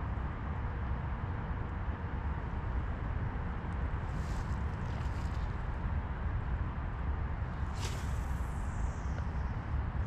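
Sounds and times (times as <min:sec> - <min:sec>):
faint brief hiss: 0:07.6 - 0:08.9.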